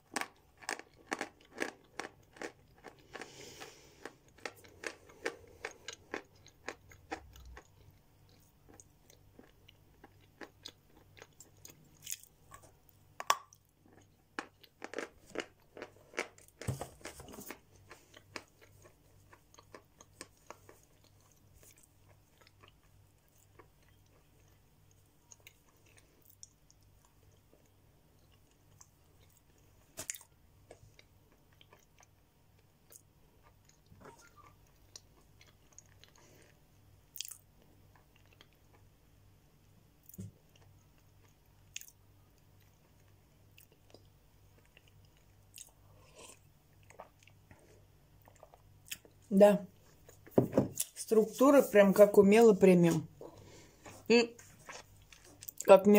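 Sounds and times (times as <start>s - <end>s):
chalk crunching while chewed: 0.1s - 12.7s, 13.3s - 24.6s, 37.1s - 38.6s, 53.8s - 55.7s.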